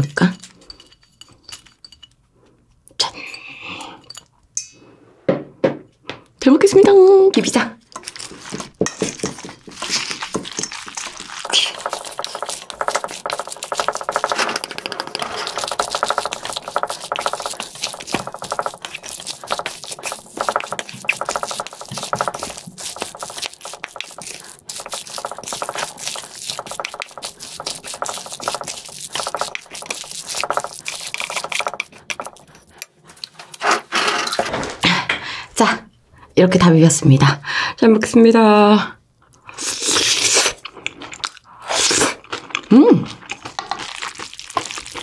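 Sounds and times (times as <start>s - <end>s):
wet sticky mixing: 7.9s - 33.6s, 42.1s - 45.0s
spoon scraping a metal bowl: 8.0s - 34.5s.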